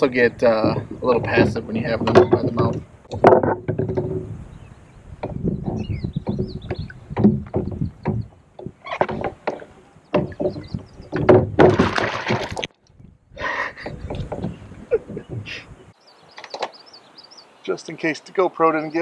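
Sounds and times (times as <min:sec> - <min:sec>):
paddle and gear knocking and rattling: 0:00.0 - 0:04.6, 0:05.2 - 0:15.8.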